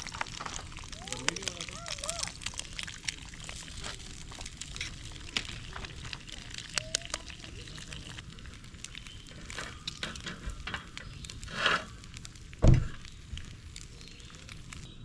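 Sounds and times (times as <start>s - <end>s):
campfire crackling: 0.0s - 15.0s
eggs sizzling in a skillet: 0.0s - 15.0s
dull thump: 12.6s - 13.0s.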